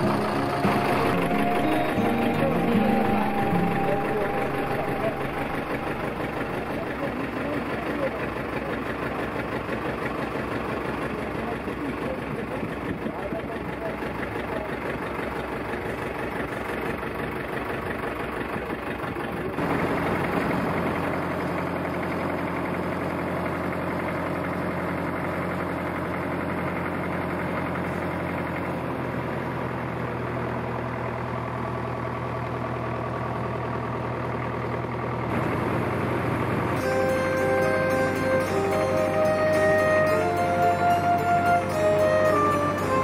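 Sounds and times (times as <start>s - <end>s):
low hum: 0.0s - 8.6s
tractor engine running: 0.0s - 43.0s.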